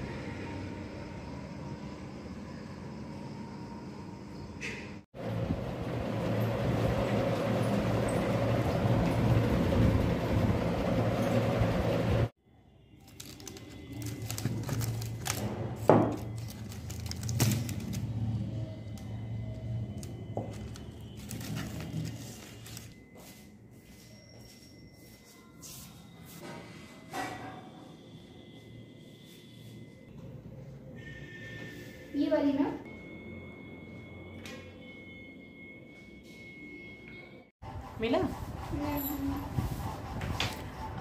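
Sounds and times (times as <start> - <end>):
plastic wrapping rustling: 13.0 - 18.3, 20.5 - 23.1.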